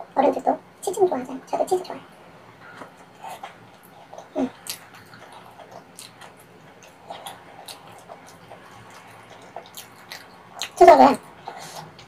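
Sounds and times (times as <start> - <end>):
mouth clicks and smacks chewing: 2.8 - 12.0.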